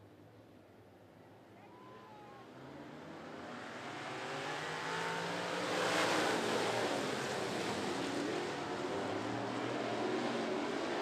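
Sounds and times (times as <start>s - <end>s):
stock car engines accelerating: 2.5s - 11.0s.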